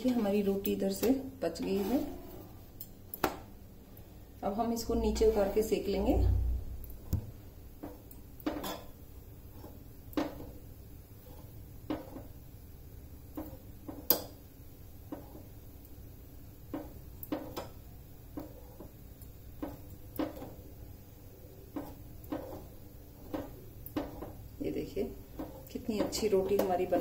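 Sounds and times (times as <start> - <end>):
low steady rumble: 3.8 - 8.4.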